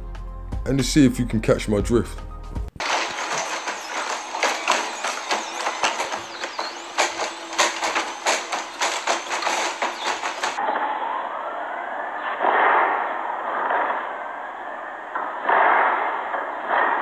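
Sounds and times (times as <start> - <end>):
rapid sharp knocks: 2.8 - 10.6.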